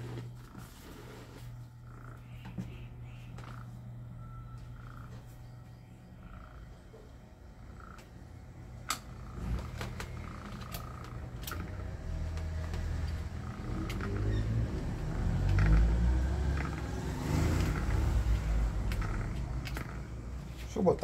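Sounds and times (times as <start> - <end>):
electric motor humming: 6.3 - 20.4.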